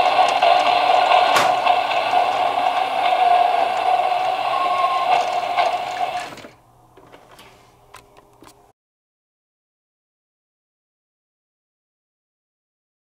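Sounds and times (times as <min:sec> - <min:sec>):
toy train motor whirring: 0:00.0 - 0:06.6.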